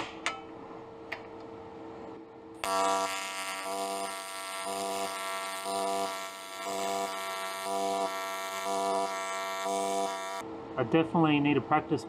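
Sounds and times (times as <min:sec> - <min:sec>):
welding arc buzzing: 0:02.6 - 0:10.4.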